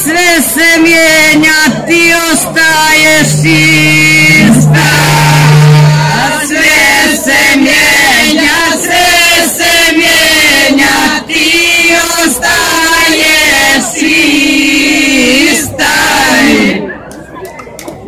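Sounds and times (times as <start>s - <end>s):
low steady tone: 1.8s - 6.4s.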